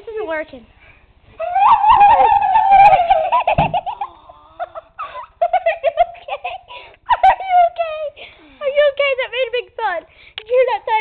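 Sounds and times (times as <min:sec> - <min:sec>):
child squealing: 0:01.4 - 0:04.7
children giggling: 0:01.4 - 0:07.6
head thudding against door: 0:03.5 - 0:03.9.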